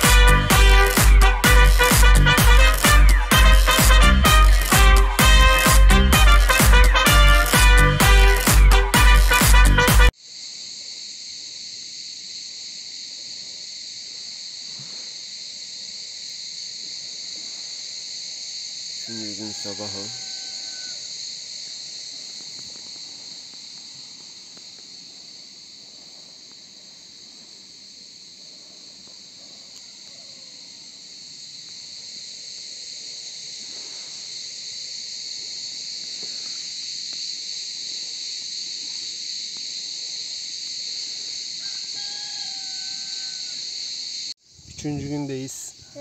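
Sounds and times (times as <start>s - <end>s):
insects shrill drone: 0.0s - 46.0s.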